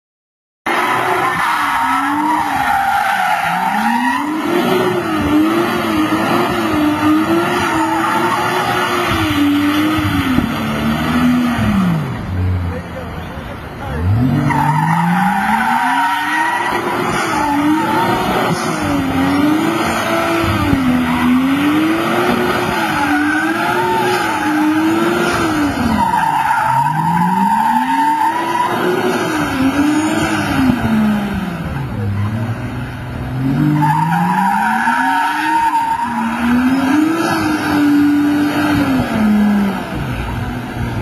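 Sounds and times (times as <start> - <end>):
car engine revving: 0.7 - 41.0
tyres squealing: 13.1 - 30.4, 33.5 - 38.4.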